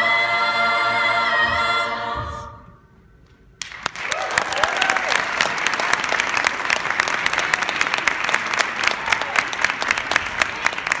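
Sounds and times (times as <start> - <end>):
audience clapping: 3.6 - 11.0.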